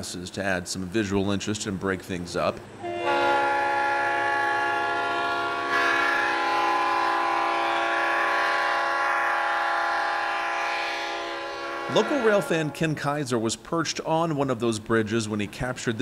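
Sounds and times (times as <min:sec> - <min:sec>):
locomotive air horn blast: 0:02.8 - 0:13.0.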